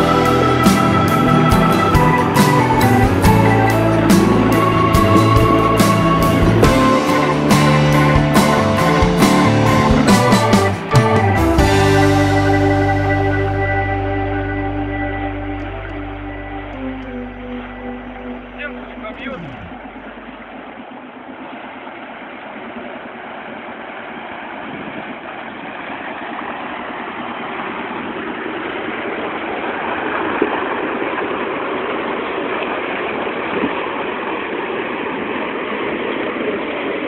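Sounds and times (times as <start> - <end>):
truck engine running: 0.0 - 24.5
water churning and splashing: 18.3 - 37.0.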